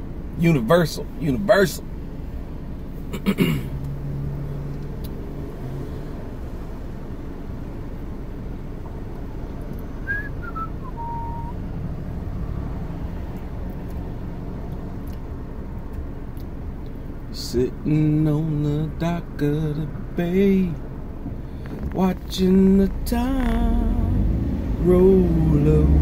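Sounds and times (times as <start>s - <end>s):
car cabin engine rumble: 0.0s - 26.0s
short descending whistle: 10.0s - 11.6s.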